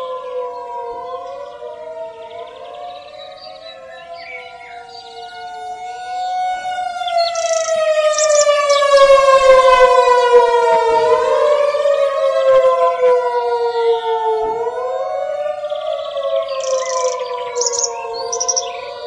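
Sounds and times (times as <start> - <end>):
warning siren wailing: 0.0 - 19.0
birds chirping faintly: 0.4 - 10.6, 15.2 - 19.0.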